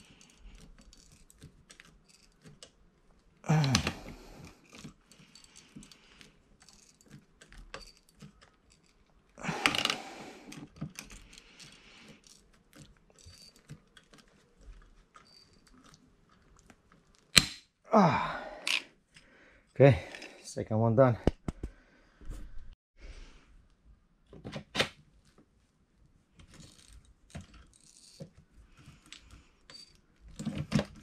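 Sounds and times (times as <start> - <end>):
rivet gun clicks and creaks: 0.0 - 17.7, 18.6 - 20.5, 26.3 - 31.0
rivet mandrel snapping: 17.3 - 17.7.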